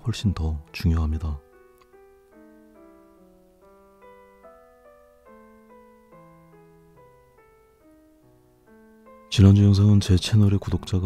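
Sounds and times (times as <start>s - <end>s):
gentle piano music: 0.0s - 11.0s.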